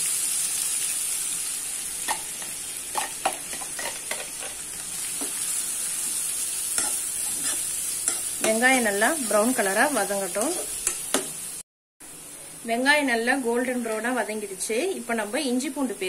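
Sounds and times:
onions sizzling in oil: 0.0s - 11.6s, 12.6s - 16.0s
spatula tapping and scraping pan: 2.1s - 4.6s, 6.7s - 8.6s, 10.4s - 11.4s.

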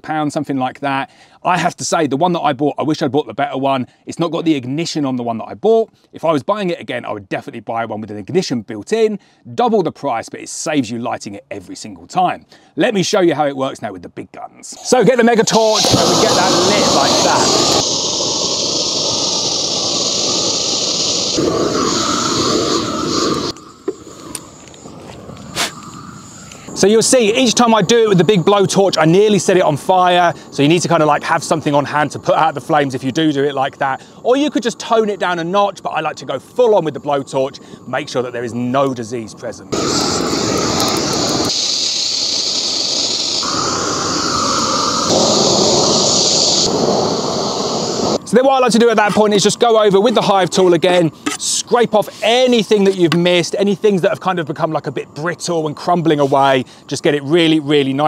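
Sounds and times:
blowtorch hissing: 14.8s - 33.1s, 39.7s - 48.2s.

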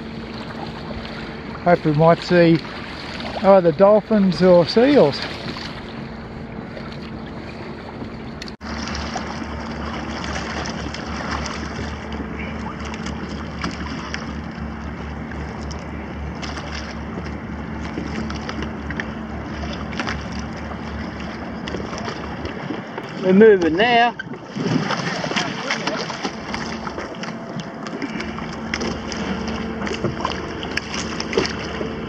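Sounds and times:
steady low hum: 0.0s - 32.0s
water sloshing against hulls: 0.0s - 32.0s
wind on microphone: 24.2s - 27.0s.

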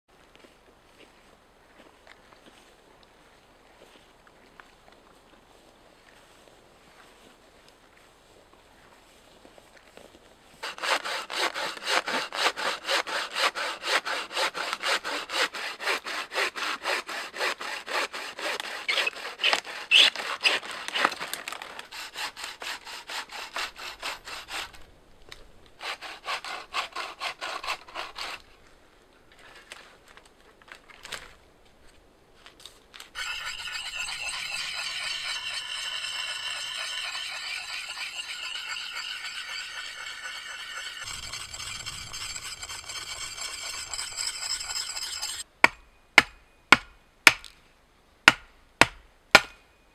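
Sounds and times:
frame saw cutting a branch: 10.6s - 24.8s, 25.8s - 28.5s, 33.0s - 45.5s
steady higher sound: 33.2s - 45.4s.

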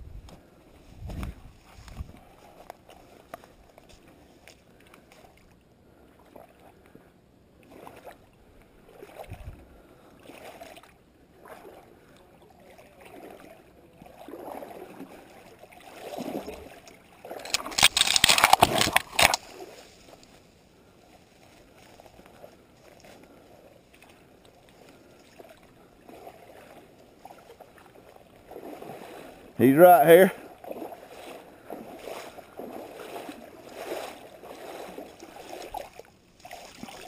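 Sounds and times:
footsteps sloshing through water: 0.2s - 29.6s, 30.3s - 37.0s
brush rustling: 17.4s - 22.2s.

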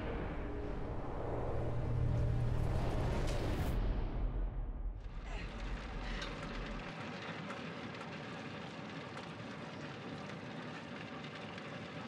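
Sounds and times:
deep low rumble: 0.0s - 6.9s.

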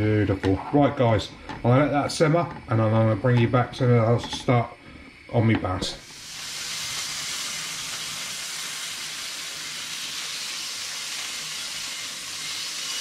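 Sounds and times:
oil and garlic sizzling in a pan: 5.8s - 13.0s.

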